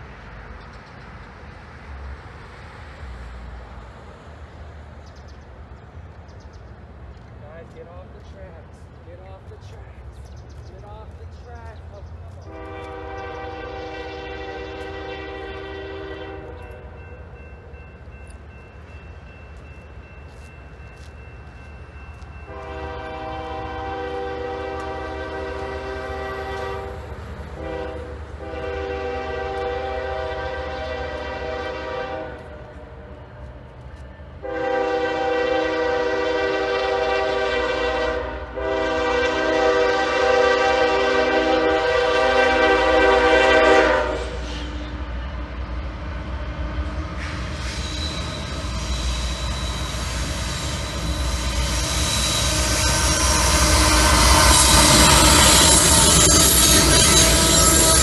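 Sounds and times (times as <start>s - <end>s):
locomotive air horn blasts: 12.4s - 16.9s, 22.5s - 27.0s, 27.6s - 32.9s, 34.4s - 44.9s, 50.9s - 58.0s.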